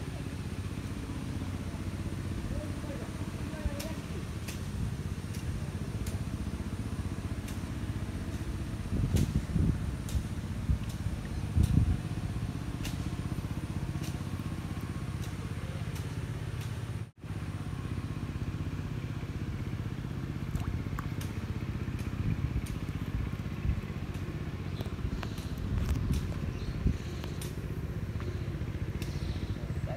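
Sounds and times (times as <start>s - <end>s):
motor engine running: 0.0s - 29.9s
light ticks: 28.9s - 29.2s.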